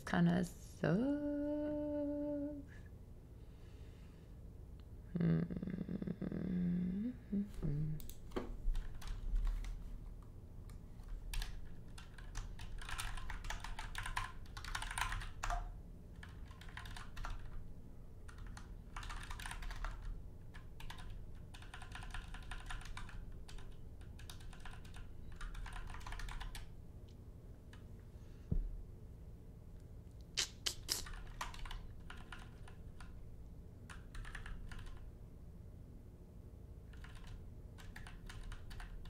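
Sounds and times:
typing on computer keyboard: 8.0s - 9.8s, 11.3s - 17.6s, 18.3s - 26.7s, 31.0s - 33.2s, 33.9s - 35.1s, 36.9s - 39.0s.

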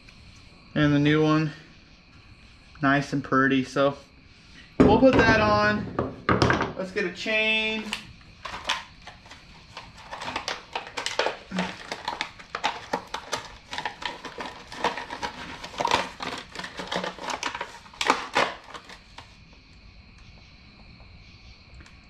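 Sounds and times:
packaging crinkling: 7.8s - 19.3s.

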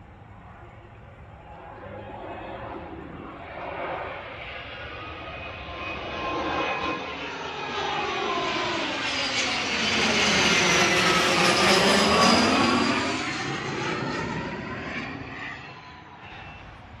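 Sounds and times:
jet passing overhead: 0.0s - 17.0s.

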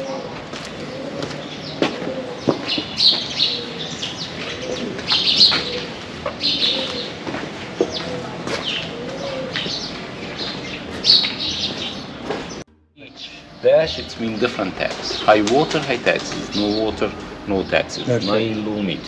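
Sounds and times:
pigeons cooing: 0.0s - 12.6s
small birds chirping: 0.0s - 19.0s.

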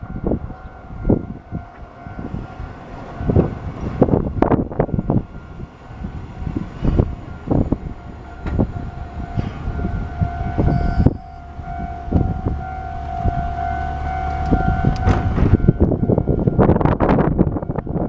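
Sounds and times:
steady high tone: 0.0s - 18.0s
wind buffeting microphone: 0.0s - 18.0s.

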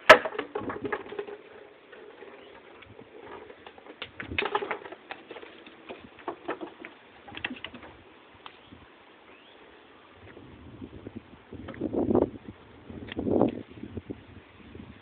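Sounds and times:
dog claws scrabbling on wooden deck: 0.2s - 8.0s.

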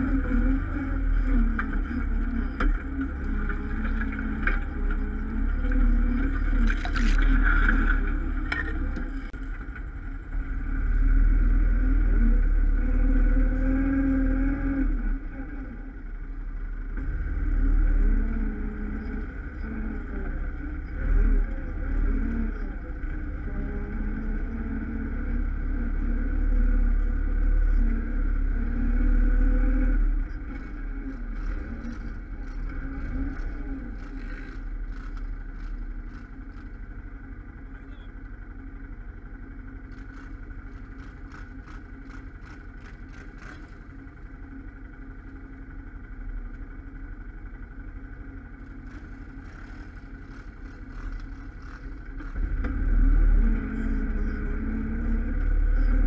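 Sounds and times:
quad bike engine revving: 0.0s - 9.3s, 10.8s - 15.8s, 17.0s - 36.8s, 48.8s - 56.0s.

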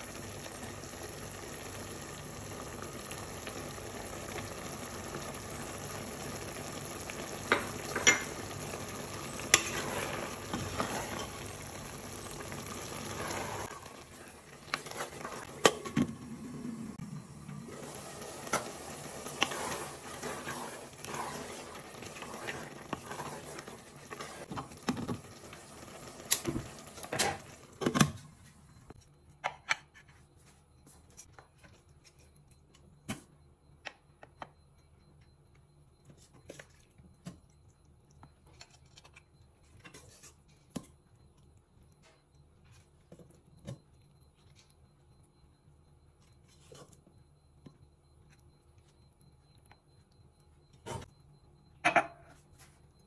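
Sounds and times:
soup simmering and bubbling: 0.0s - 29.0s
glass lid clinking: 7.5s - 8.4s, 51.8s - 52.3s.

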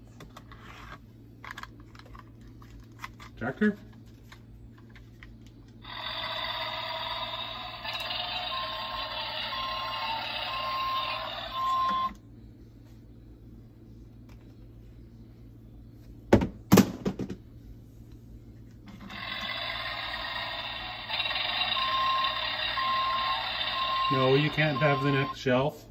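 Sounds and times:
toy engine sound effect: 5.8s - 12.1s, 19.0s - 25.4s
short beeps: 23.8s - 25.4s.

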